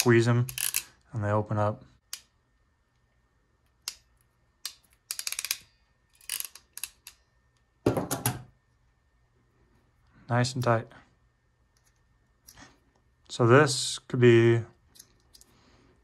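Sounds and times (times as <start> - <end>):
ratcheting crimper clicking: 0.0 - 0.9, 3.8 - 7.2.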